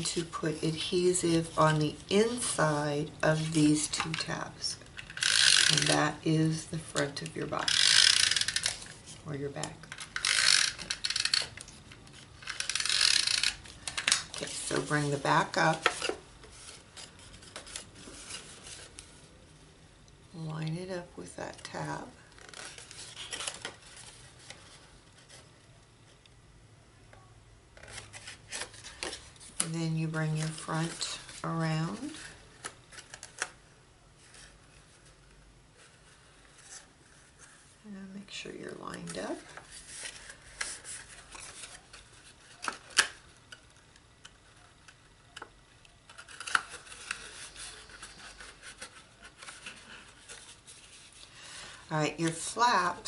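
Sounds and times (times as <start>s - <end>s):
paper rustling: 10.0s - 19.3s, 39.0s - 43.2s, 46.1s - 52.7s
stiff paper rustling: 46.1s - 52.6s.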